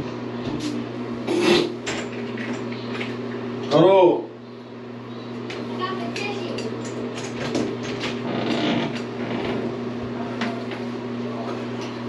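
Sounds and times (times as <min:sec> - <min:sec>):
steady hum: 0:00.0 - 0:12.0
door creaking open: 0:07.4 - 0:09.8.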